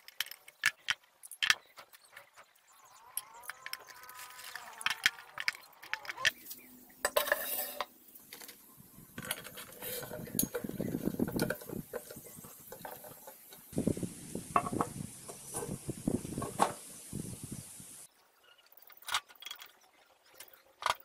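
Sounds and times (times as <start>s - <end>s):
metal parts clinking and knocking: 7.0s - 13.7s
metal scraping on steel column: 7.0s - 13.7s.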